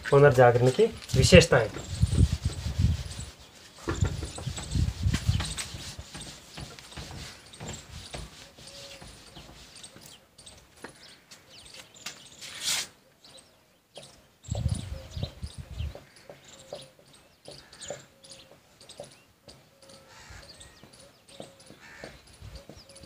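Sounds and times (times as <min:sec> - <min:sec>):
low thumps: 0:00.5 - 0:08.4
marker squeaking on whiteboard: 0:01.3 - 0:10.6, 0:11.7 - 0:13.0.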